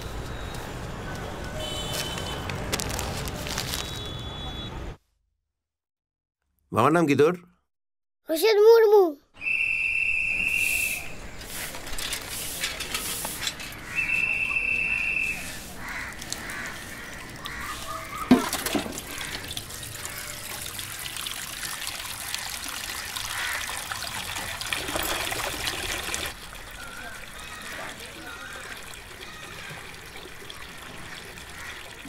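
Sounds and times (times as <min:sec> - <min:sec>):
stiff broom sweeping road: 0:10.4 - 0:17.0
water running into a basin: 0:16.1 - 0:32.0.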